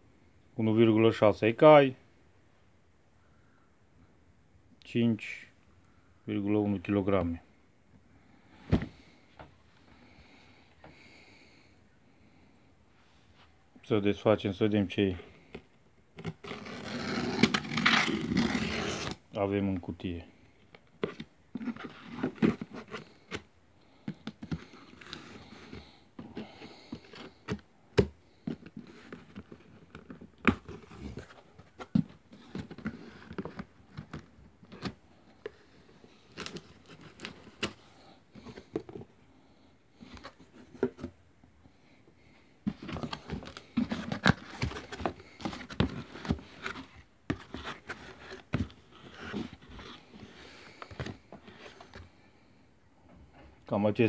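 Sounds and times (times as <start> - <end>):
cardboard and plastic rustling: 20.7 - 39.2, 40.0 - 41.2, 42.6 - 52.2.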